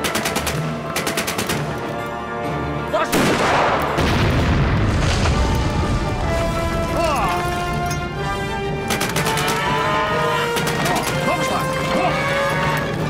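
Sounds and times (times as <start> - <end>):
film music score: 0.0 - 13.0
gunshots: 3.1 - 5.7, 8.8 - 11.8
loud explosion rumbling: 3.2 - 6.8.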